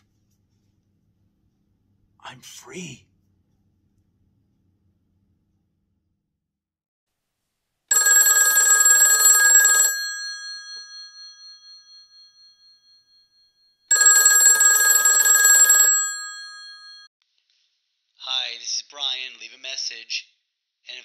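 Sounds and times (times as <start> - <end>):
telephone bell ringing: 7.9 - 17.1.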